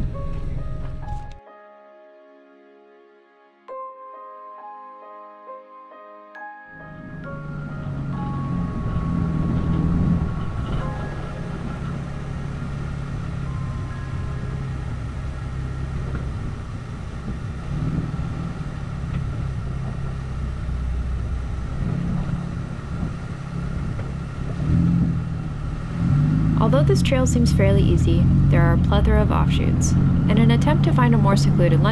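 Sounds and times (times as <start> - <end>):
car engine droning: 6.8 - 31.9
tyres rumbling over rocky track: 7.3 - 31.9.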